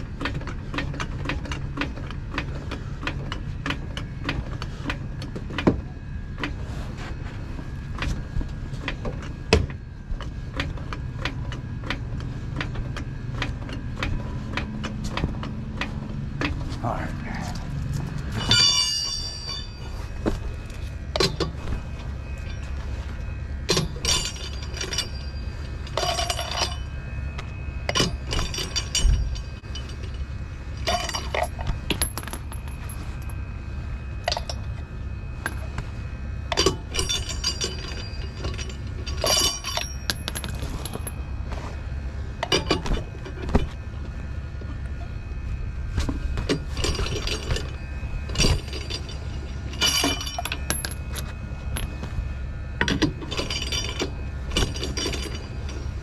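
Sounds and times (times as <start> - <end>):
steady low rumble: 0.0 - 56.0
lug wrench clinking on lug nuts: 18.4 - 19.8, 23.7 - 26.9, 36.5 - 41.2, 48.4 - 51.9.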